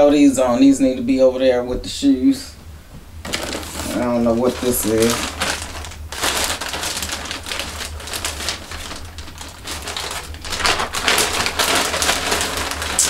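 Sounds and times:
package rustling and crinkling: 0:03.2 - 0:13.0.

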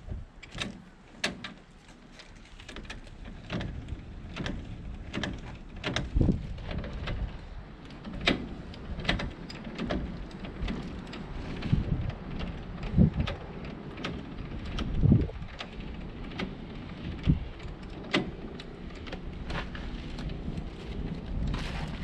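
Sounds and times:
metal clicks and clunks: 0:00.1 - 0:22.0
low rumble: 0:14.3 - 0:22.0.

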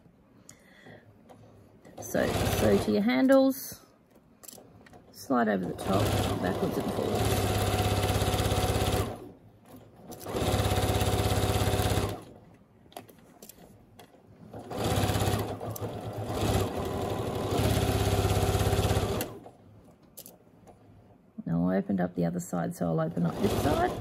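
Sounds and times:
sewing machine stitching: 0:01.8 - 0:03.0, 0:04.9 - 0:12.4, 0:14.4 - 0:19.6, 0:23.1 - 0:24.0.

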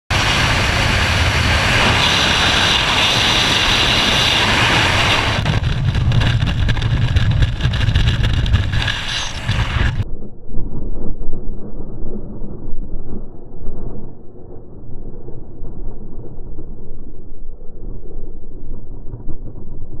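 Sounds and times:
parachute deploying: 0:00.1 - 0:13.8
wind rushing over microphone: 0:00.1 - 0:20.0.

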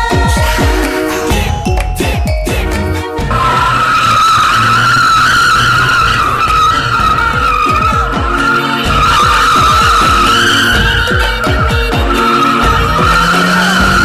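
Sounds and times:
car engine revving: 0:03.3 - 0:14.0
tyres squealing: 0:03.3 - 0:14.0.

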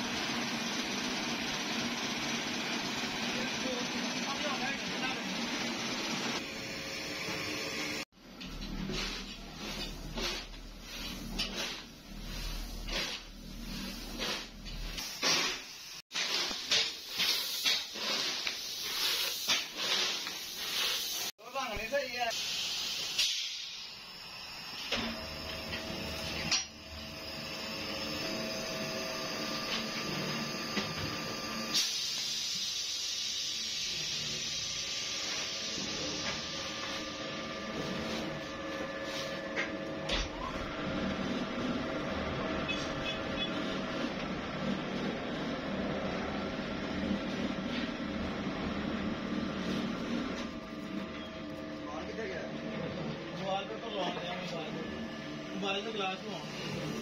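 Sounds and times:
machine humming with held tones: 0:23.6 - 0:31.7.

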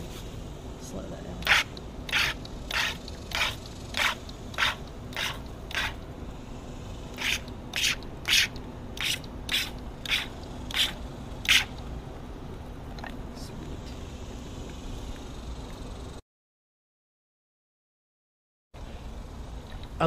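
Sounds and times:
water gun squirts: 0:01.4 - 0:06.0, 0:07.1 - 0:11.7.

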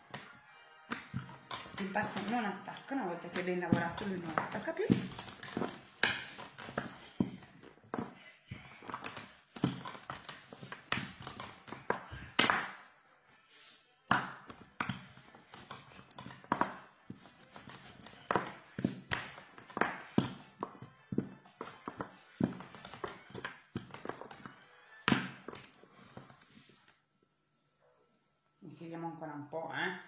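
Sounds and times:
rolling pin tapping on worktop: 0:00.9 - 0:08.1, 0:08.9 - 0:12.9.

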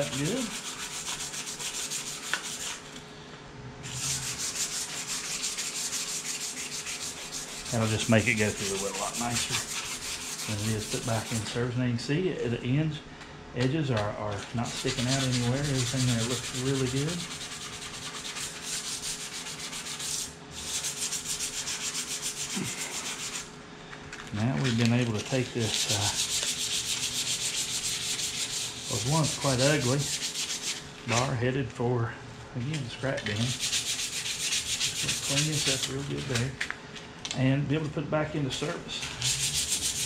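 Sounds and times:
abrasive block scrubbing steel: 0:03.9 - 0:11.6.

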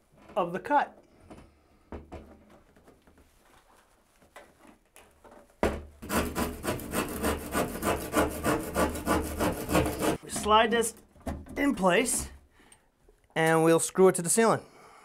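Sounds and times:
hand saw cutting: 0:06.0 - 0:10.2.

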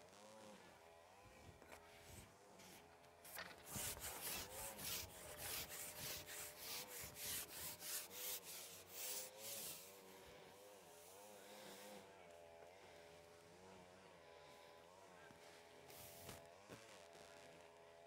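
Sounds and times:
faint wavering motor hum: 0:00.0 - 0:18.0
fishing pole rubbing through hands: 0:02.7 - 0:10.0.

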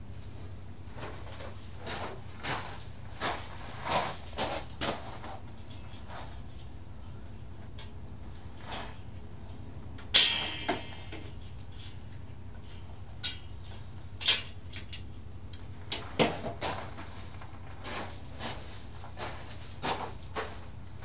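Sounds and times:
ringing metallic clank: 0:10.1 - 0:11.4.

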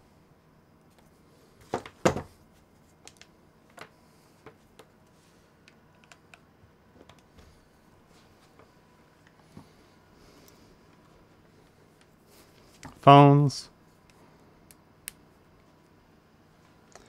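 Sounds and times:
cables and plugs knocking on desk: 0:01.7 - 0:02.3
light clicks and taps of cables: 0:05.6 - 0:07.4.

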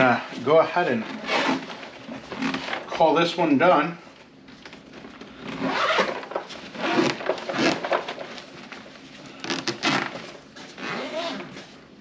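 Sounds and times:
zipper being pulled closed: 0:01.1 - 0:02.7, 0:05.4 - 0:08.2, 0:09.4 - 0:11.6.

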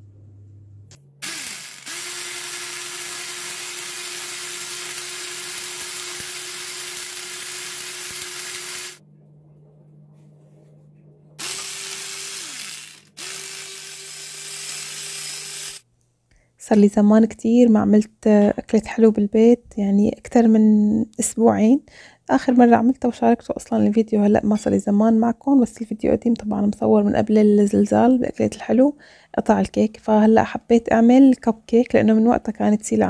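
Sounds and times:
electric hand mixer beating eggs: 0:01.2 - 0:09.0, 0:11.4 - 0:15.8.

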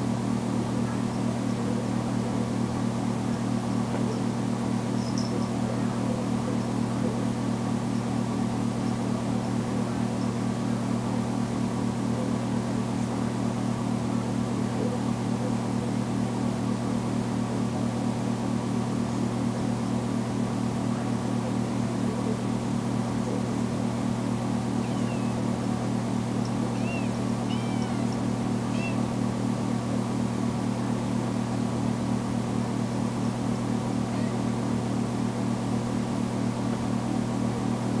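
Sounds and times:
steady low hum: 0:00.0 - 0:38.0
kitten meowing: 0:24.8 - 0:25.4, 0:26.7 - 0:29.0, 0:34.1 - 0:34.4.

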